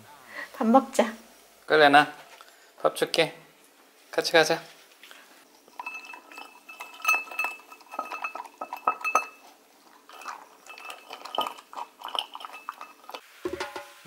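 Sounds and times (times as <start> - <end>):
dog eating from ceramic bowl: 5.7 - 13.2.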